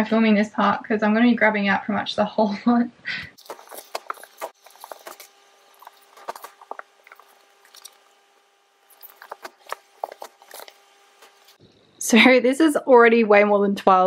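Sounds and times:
fabric rustling: 3.4 - 11.6.

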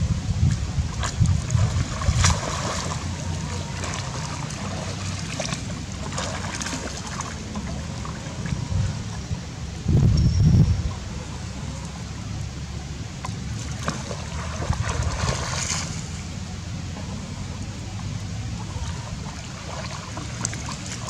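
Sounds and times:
water splashing and lapping: 0.0 - 9.9, 10.7 - 21.0
steady low rumble: 0.0 - 21.0
sharp splashes: 0.5 - 8.6, 13.4 - 16.4.

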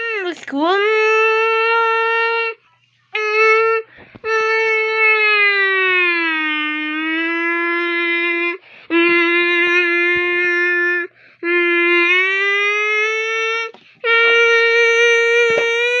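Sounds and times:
person holding long vocal tones: 5.9 - 16.0.

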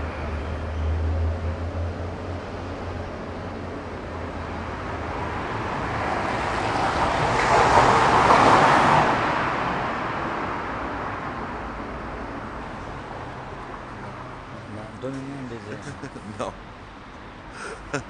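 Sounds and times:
car passing by: 4.6 - 16.0.

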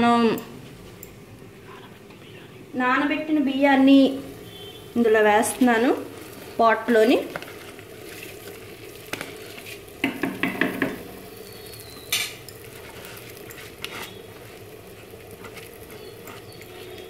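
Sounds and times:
steady sizzle: 0.0 - 17.0
colander knocking on pot: 10.0 - 11.1.

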